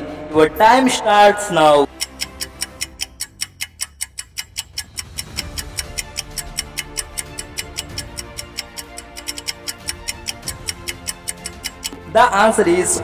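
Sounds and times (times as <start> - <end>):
background music: 0.0 - 13.0
rapid clock ticking: 1.8 - 12.4.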